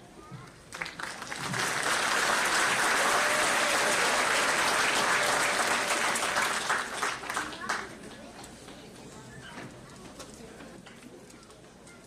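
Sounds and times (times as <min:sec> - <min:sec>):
crowd applauding: 0:00.7 - 0:08.0.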